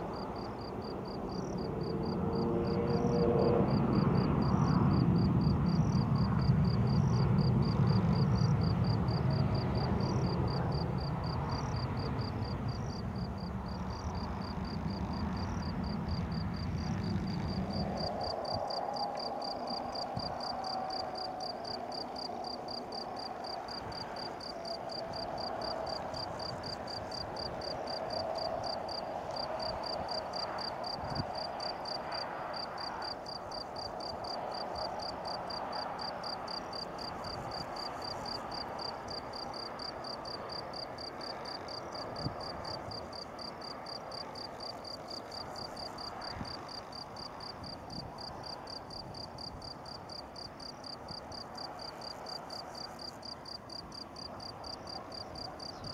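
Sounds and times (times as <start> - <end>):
cricket chirping: 0.0 - 55.9.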